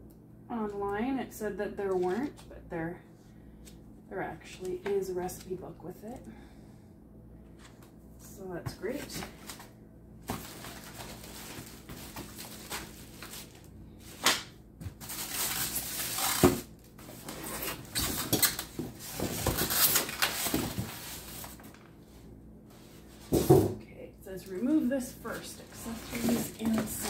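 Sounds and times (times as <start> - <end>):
foam packaging rustling and scraping: 8.9 - 21.9, 24.4 - 27.0.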